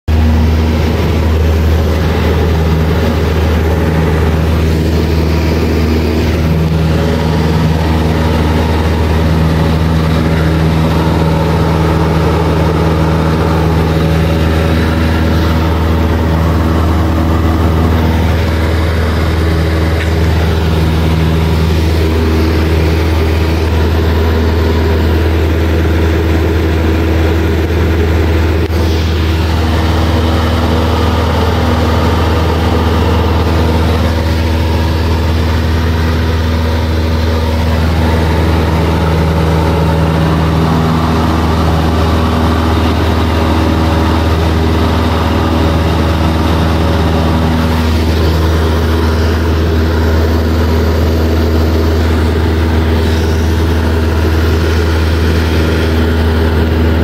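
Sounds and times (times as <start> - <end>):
light aircraft engine drone: 0.1 - 57.0.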